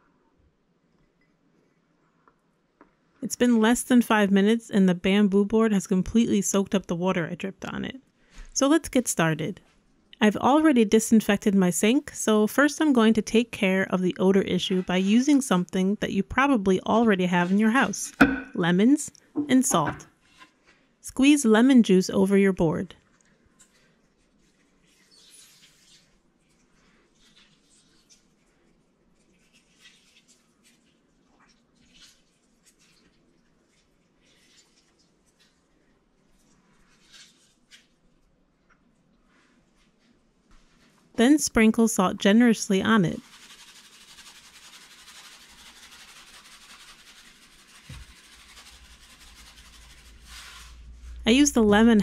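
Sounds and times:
soft knock: 18.2 - 18.6
lemon squeezed by hand: 43.2 - 51.0.

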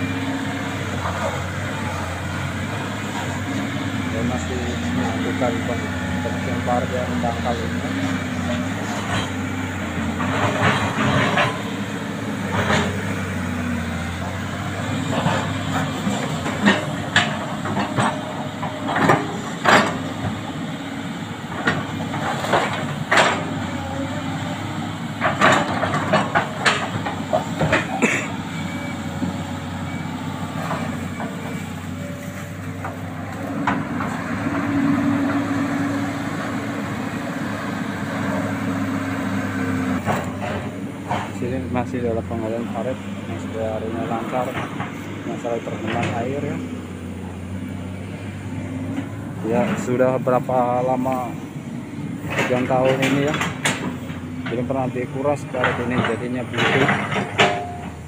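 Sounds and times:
excavator diesel engine running: 0.0 - 58.0
machine clanks and knocks: 10.1 - 11.8, 15.1 - 20.5, 21.5 - 24.3, 25.2 - 29.3, 40.0 - 46.6, 52.2 - 58.0.

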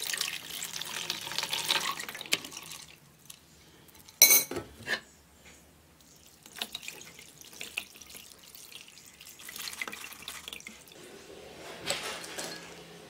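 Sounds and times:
water pouring through strainer: 6.4 - 11.2.

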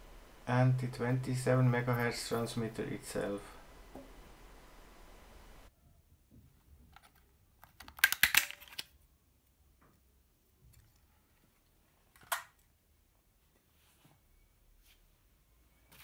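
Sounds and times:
hard plastic clicking and snapping: 7.0 - 8.9.

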